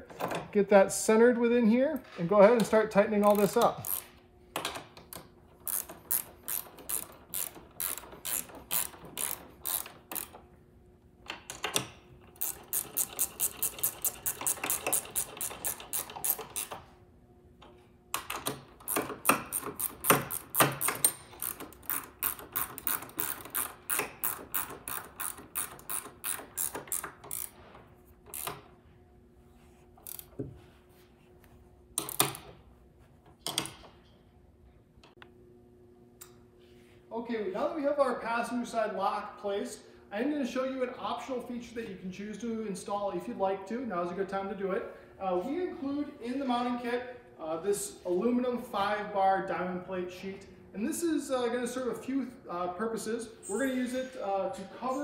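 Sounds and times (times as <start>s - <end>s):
ratchet wrench clicking: 3.2s - 4.1s, 5.6s - 10.4s, 11.5s - 16.8s, 18.2s - 27.6s, 30.0s - 30.3s.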